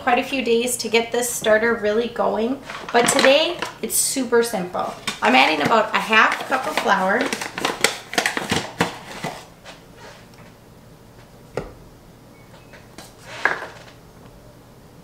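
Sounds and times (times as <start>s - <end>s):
paper bag rustling: 4.8s - 10.3s.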